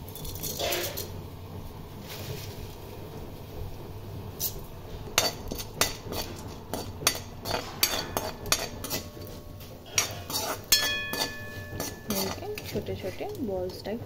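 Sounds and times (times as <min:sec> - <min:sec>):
food frying in oil: 0:00.0 - 0:14.0
spatula scraping metal pan: 0:05.1 - 0:13.9.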